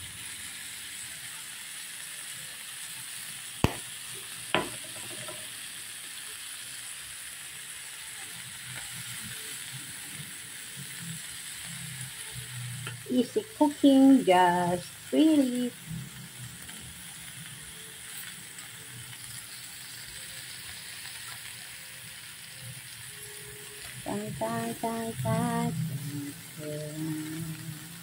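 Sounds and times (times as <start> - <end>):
shrimp sizzling in a pan: 0.0 - 28.0
sharp pops: 3.6 - 5.4.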